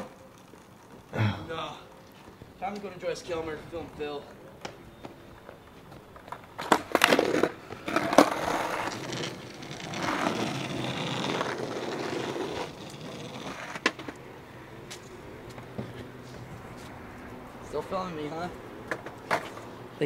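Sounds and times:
skateboard wheels rolling on asphalt: 0.0s - 20.0s
skateboard clacks: 4.3s - 14.2s, 18.8s - 19.6s.

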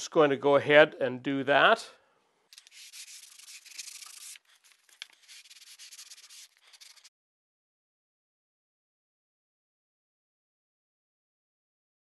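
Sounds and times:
sandpaper rubbing on wood: 2.6s - 7.1s.

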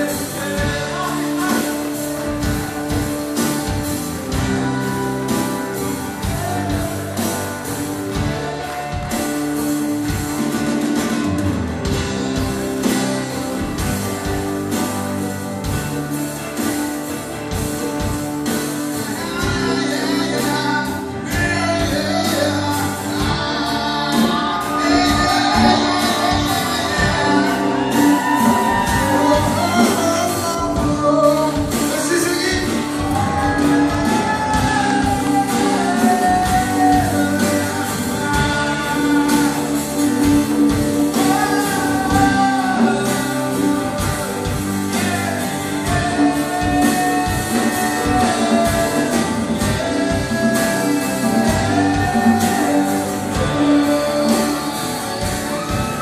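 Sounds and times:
person singing: 0.0s - 11.3s, 17.6s - 56.0s
drum kit beat: 0.0s - 56.0s
live band playing: 0.0s - 56.0s
strummed guitars: 0.0s - 56.0s.

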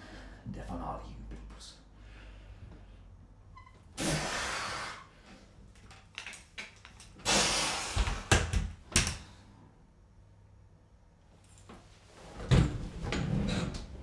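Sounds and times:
short hissing bursts: 4.0s - 5.1s, 7.2s - 8.3s.

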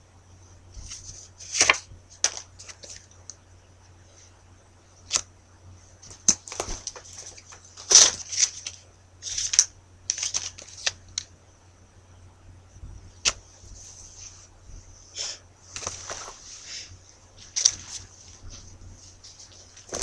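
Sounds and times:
low electrical hum: 0.0s - 20.0s
scratchy rustles and clicks: 15.7s - 20.0s.

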